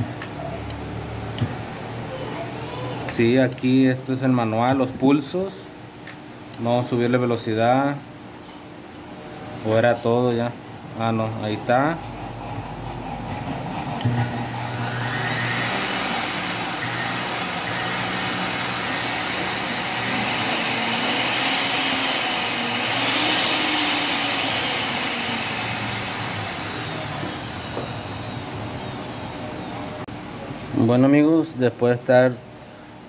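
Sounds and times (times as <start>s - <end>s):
blender motor running: 13.9s - 30.0s.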